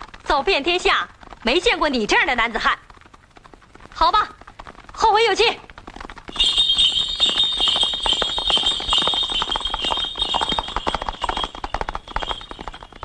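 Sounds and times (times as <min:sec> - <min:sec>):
horse hooves on dirt road: 0:00.0 - 0:13.0
high-pitched tone: 0:06.3 - 0:11.6.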